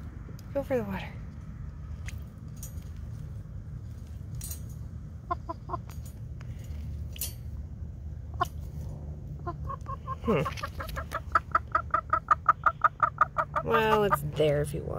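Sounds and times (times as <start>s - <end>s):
chicken clucking: 5.2s - 5.9s, 9.3s - 14.3s.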